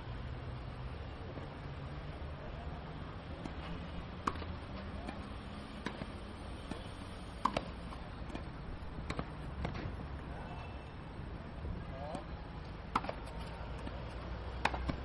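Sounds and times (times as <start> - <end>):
outdoor background noise: 0.0 - 15.0
tennis ball racket pops: 14.6 - 15.0.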